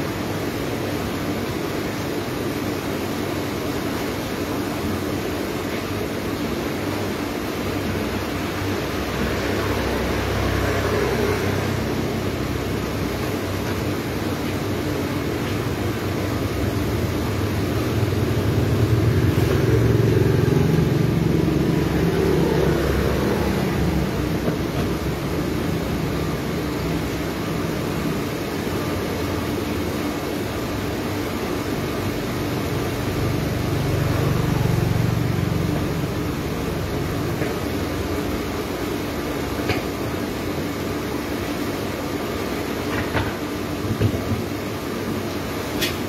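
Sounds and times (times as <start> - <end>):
steady low hum: 0.0 - 46.0
vehicles passing: 8.0 - 27.7, 32.2 - 38.3.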